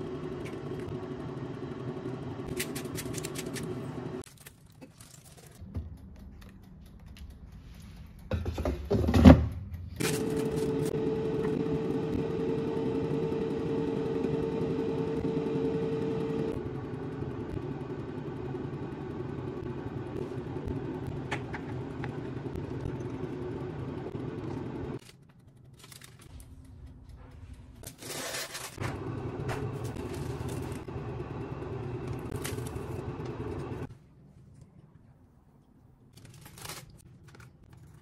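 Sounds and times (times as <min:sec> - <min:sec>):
mechanical hum: 0:00.0 - 0:38.0.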